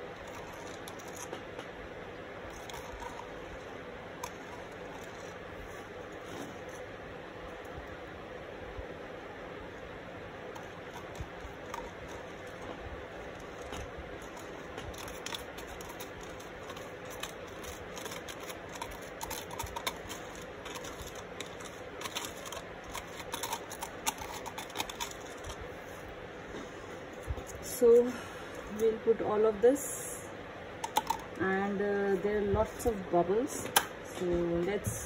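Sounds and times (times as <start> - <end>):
wooden spoon scraping plastic cup: 13.3 - 25.6.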